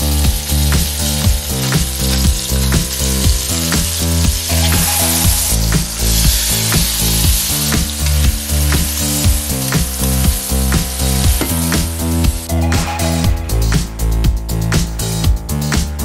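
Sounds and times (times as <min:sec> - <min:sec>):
tomatoes sizzling in butter: 0:00.0 - 0:12.5
background music with steady beat: 0:00.0 - 0:16.0.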